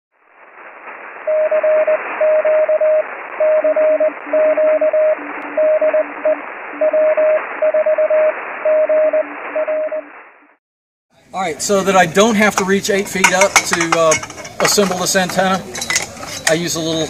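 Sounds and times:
receiver hiss: 0.2s - 10.6s
faint low morse code tone: 1.3s - 10.1s
high morse code tone: 1.3s - 10.1s.

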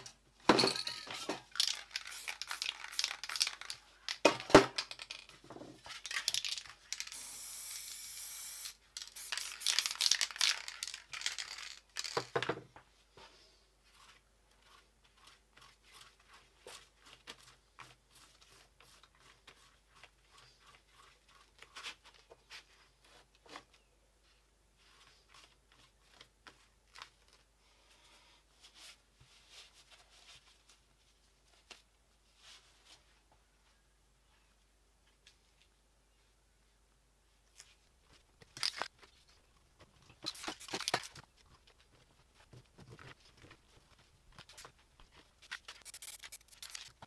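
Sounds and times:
spray can hissing: 1.6s - 3.7s, 6.9s - 10.8s, 45.8s - 46.9s
paper crinkling and tearing: 45.5s - 47.0s.

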